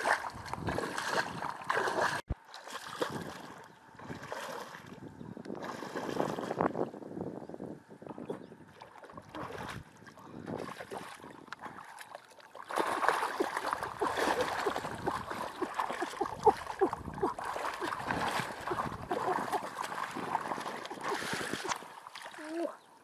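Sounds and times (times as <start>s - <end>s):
splashing in muddy water: 0.0s - 6.8s, 8.1s - 22.9s
gurgling popping bubbles: 12.6s - 21.9s.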